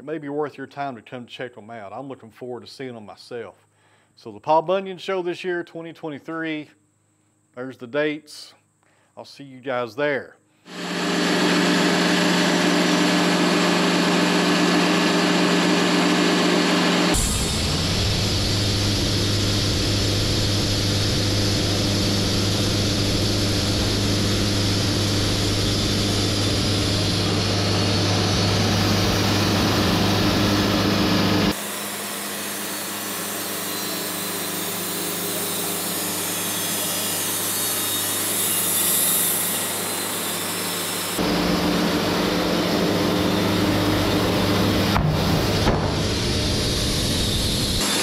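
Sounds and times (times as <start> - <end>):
sawmill engine humming: 10.7 - 48.0.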